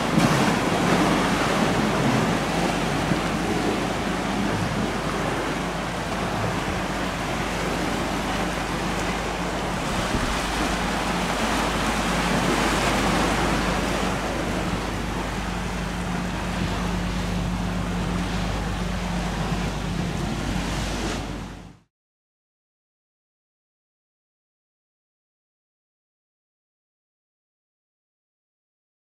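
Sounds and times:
boat engines humming: 0.0 - 21.9
waves rushing: 0.0 - 21.9
wind: 0.0 - 21.9.

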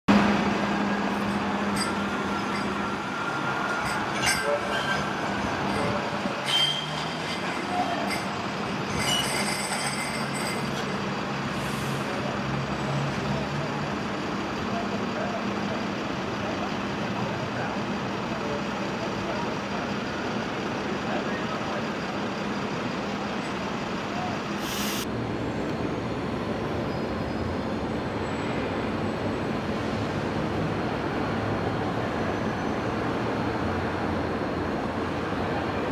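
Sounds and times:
road traffic: 0.0 - 35.9
tram moving away: 0.1 - 35.9
tram wheels squealing on rails: 0.9 - 13.1, 26.7 - 28.6, 31.6 - 33.6
short burst of hiss: 24.6 - 25.0.

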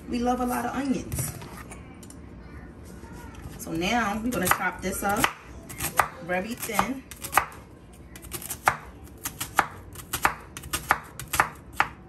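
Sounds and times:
knife slicing onion on board: 4.3 - 7.6, 8.2 - 12.0.

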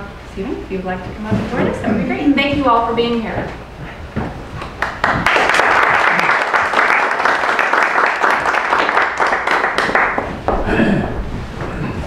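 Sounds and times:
audience applauding: 4.6 - 10.5.

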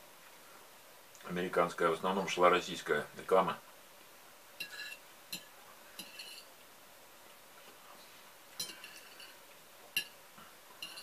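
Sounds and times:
fork clinking against a plate: 4.6 - 6.5, 8.6 - 9.4, 10.0 - 10.2, 10.8 - 11.0.

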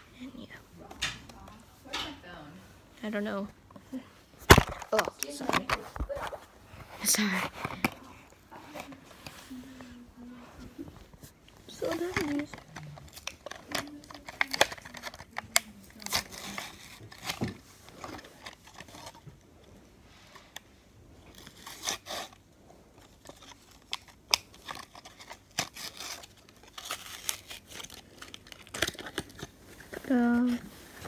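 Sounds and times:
blister pack being torn open: 11.8 - 17.5, 23.2 - 29.6.

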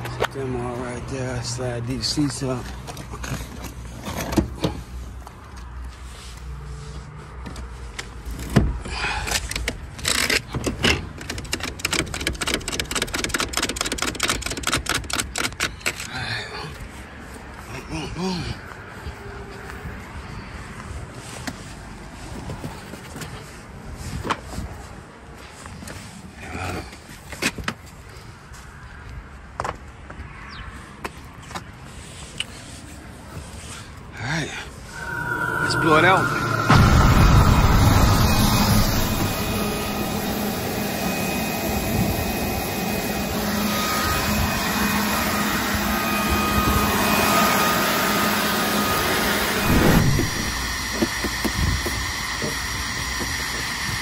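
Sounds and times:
seat mechanism clicks and rattles: 7.5 - 16.2
low background rumble: 34.9 - 43.1.

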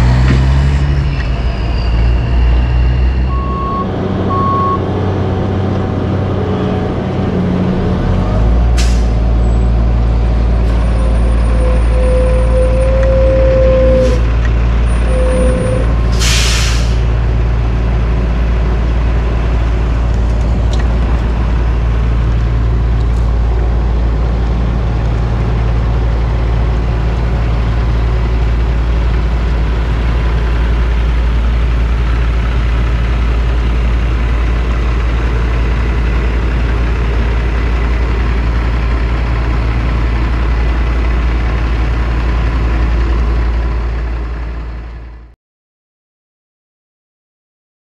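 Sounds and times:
diesel truck engine idling: 3.3 - 4.8, 14.2 - 45.3.

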